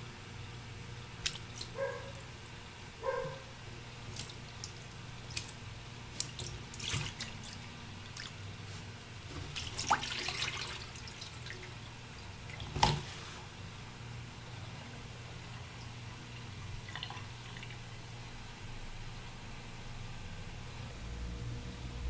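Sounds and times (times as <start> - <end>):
steady low hum: 0.0 - 22.0
water splashing and sloshing: 1.2 - 2.2, 4.0 - 13.5, 15.6 - 17.9.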